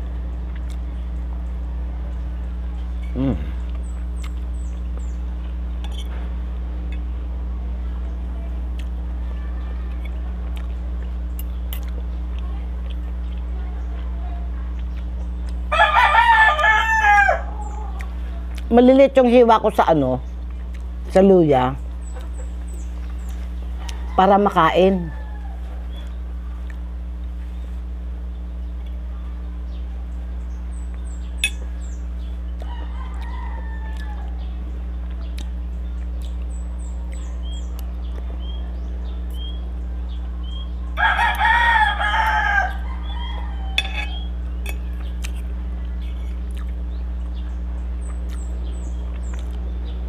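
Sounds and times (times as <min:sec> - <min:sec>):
steady low hum: 0:00.0 - 0:50.0
small birds chirping: 0:00.1 - 0:50.0
rooster crowing: 0:15.7 - 0:18.2, 0:23.7 - 0:26.0, 0:32.6 - 0:34.6, 0:40.9 - 0:45.2.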